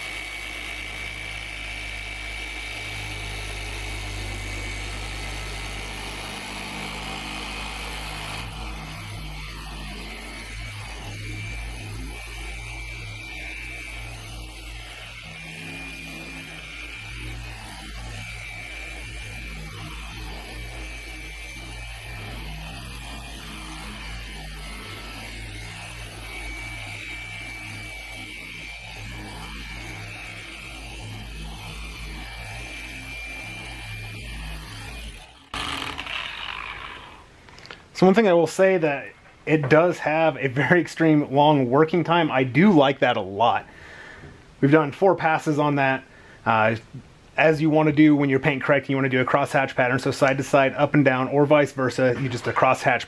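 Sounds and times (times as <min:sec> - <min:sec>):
machine polisher humming: 0:00.0 - 0:38.2.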